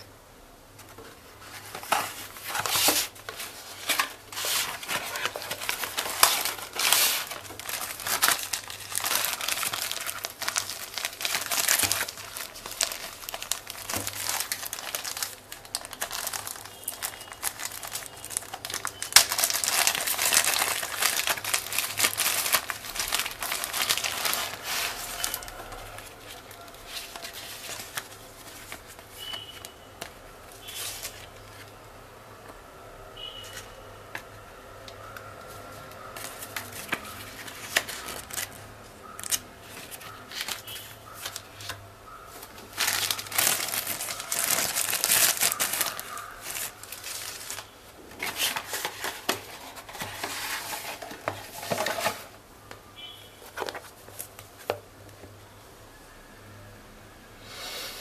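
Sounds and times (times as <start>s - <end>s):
pages flipping: 0.8s - 31.8s, 36.2s - 52.3s, 53.4s - 54.8s
plastic bag crinkling: 1.5s - 29.7s, 36.1s - 52.3s.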